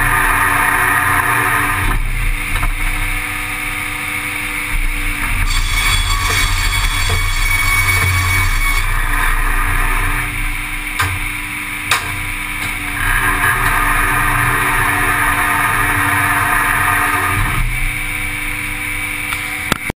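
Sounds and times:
sawmill machine noise: 0.0 - 19.9
sharp knocks: 5.5 - 8.8, 11.0 - 12.8.

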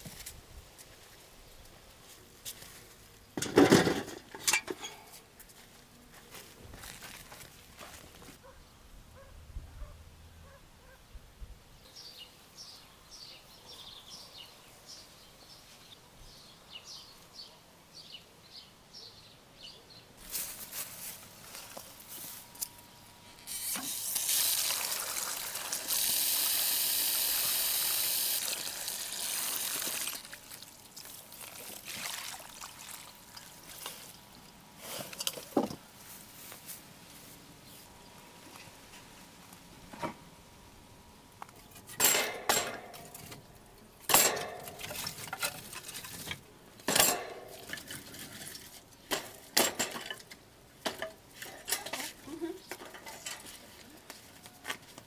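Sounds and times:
water running: 24.1 - 33.9
kitchen things clinking and knocking: 41.9 - 43.4, 44.1 - 48.1, 49.1 - 52.0.

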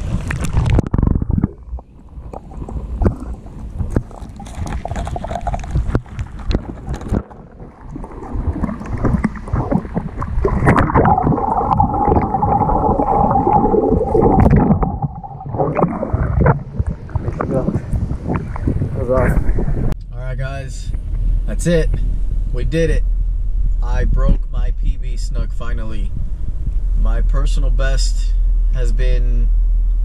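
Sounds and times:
water sloshing and gurgling: 0.0 - 20.0
steady droning tone: 0.7 - 30.0.

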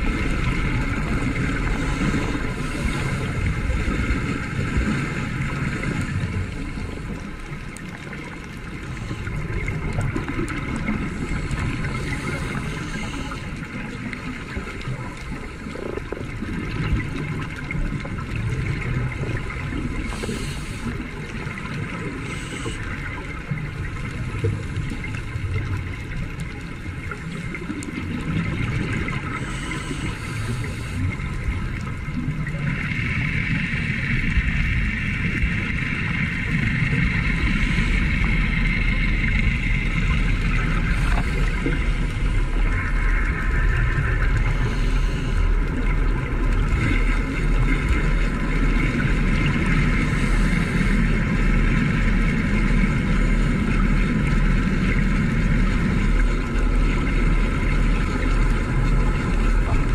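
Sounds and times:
underwater rumble and hiss: 0.0 - 59.9.

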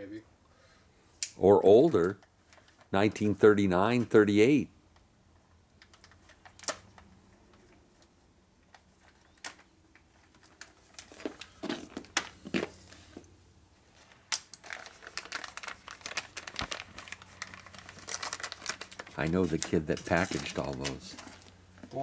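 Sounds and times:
plastic packet crinkling: 14.0 - 21.8.

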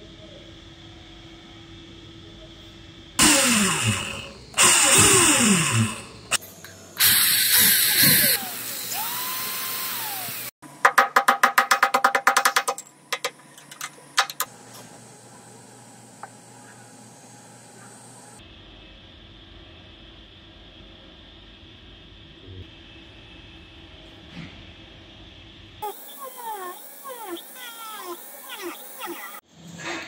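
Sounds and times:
electric drill boring into wood: 3.2 - 6.4, 7.0 - 10.5.

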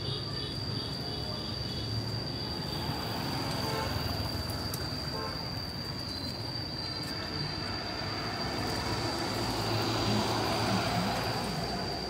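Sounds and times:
road traffic rumbling: 0.0 - 12.0
motorbike passing: 1.2 - 5.2, 7.6 - 12.0.

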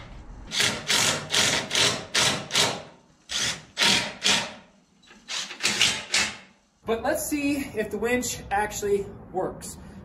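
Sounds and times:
drill driver rasping bursts: 0.5 - 6.6.

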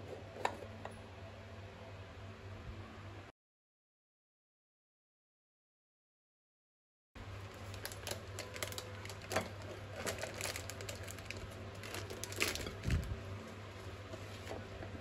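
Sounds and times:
steady low hum: 7.2 - 15.0
plastic packets crinkling: 7.4 - 13.2.

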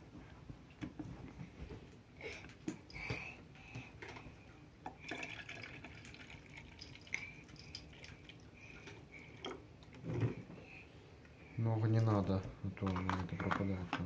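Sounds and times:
milk trickling into container: 4.9 - 8.5
plastic clicks and knocks: 12.8 - 14.0.

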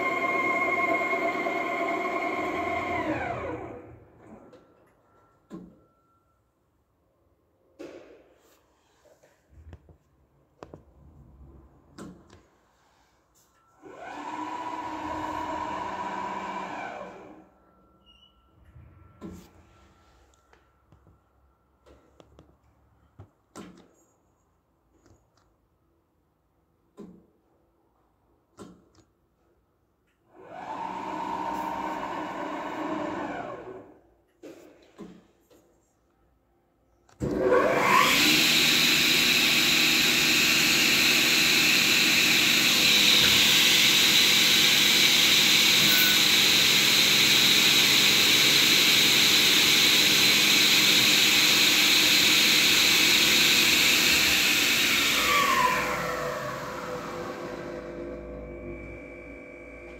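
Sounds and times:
panel saw motor running: 0.0 - 3.9, 37.3 - 59.9.

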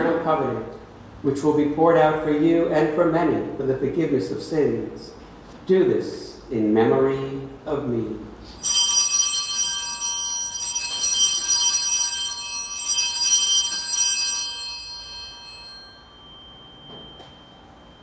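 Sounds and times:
altar bells ringing: 8.6 - 18.0.

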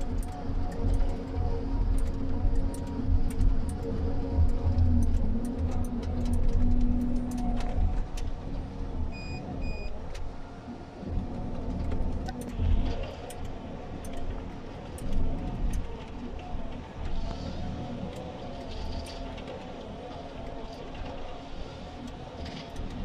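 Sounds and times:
short beeps: 9.1 - 9.9.

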